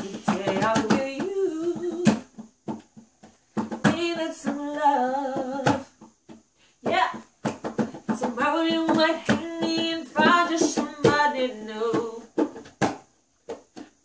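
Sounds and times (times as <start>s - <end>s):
young woman singing: 0.0s - 2.8s, 3.6s - 6.1s, 6.8s - 12.6s.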